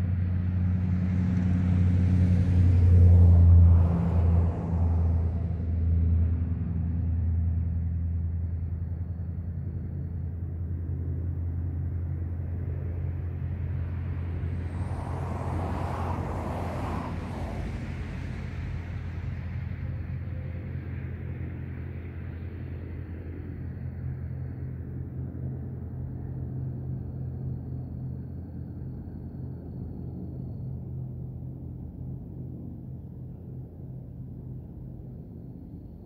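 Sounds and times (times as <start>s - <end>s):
motor vehicle rumble: 0.0s - 28.2s.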